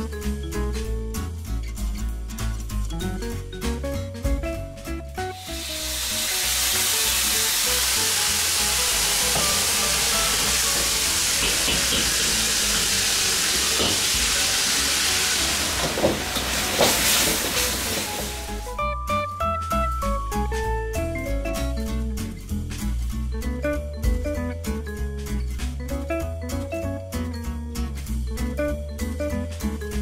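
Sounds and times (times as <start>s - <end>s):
background music: 0.0s - 30.0s
food sizzling in a wok: 5.3s - 18.8s
ladle knocking against wok: 10.4s - 12.6s.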